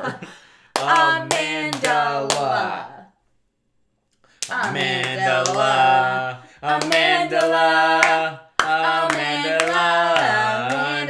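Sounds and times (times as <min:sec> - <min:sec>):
voices singing held notes: 0:04.5 - 0:11.0.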